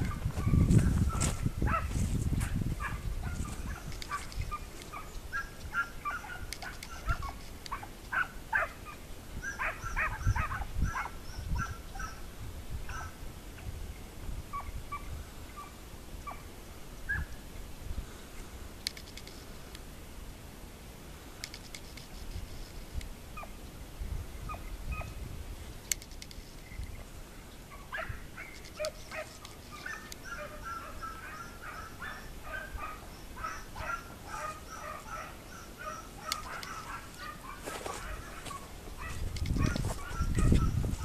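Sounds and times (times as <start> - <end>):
rapid animal calls: 2.8 - 12.3, 27.7 - 41.0
sharp clicks: 18.8 - 19.8, 21.4 - 22.3, 25.8 - 26.9, 36.3 - 36.8.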